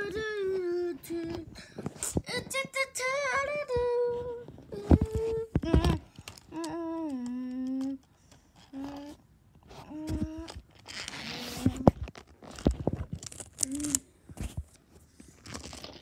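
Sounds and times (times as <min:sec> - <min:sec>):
child humming and singing: 0:00.0 - 0:09.2, 0:09.8 - 0:10.7, 0:13.6 - 0:14.0.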